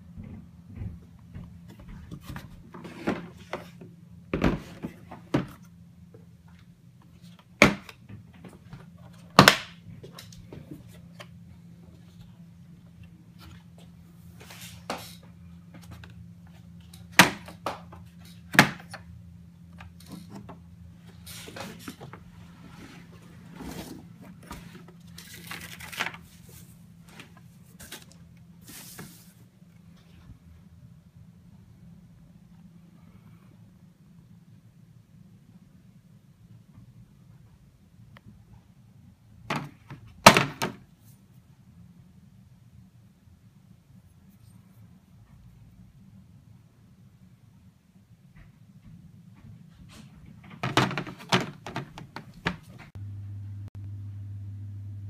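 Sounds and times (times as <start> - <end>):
steady low hum: 0.0 - 40.2, 52.0 - 55.0
rustling scrape: 21.0 - 30.4.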